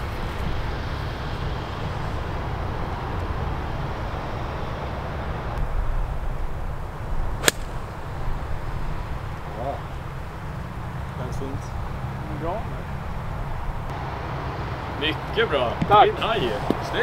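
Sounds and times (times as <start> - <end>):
golf club striking ball: 7.4 - 8.2.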